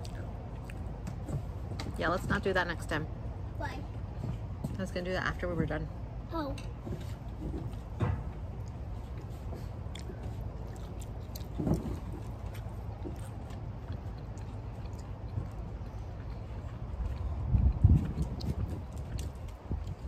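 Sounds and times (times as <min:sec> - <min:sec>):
person chewing food: 0:00.0 - 0:01.0, 0:08.6 - 0:20.0.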